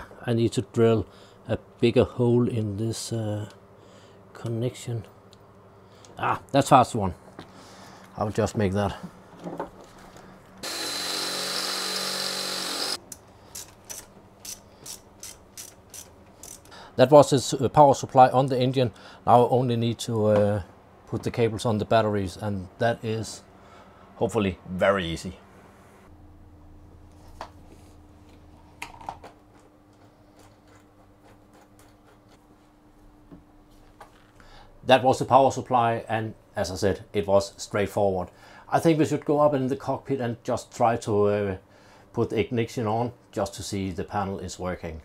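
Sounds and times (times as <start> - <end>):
low steady hum: 0.0 - 45.0
electric drill running: 10.6 - 16.6
socket ratchet clicking: 12.6 - 16.7.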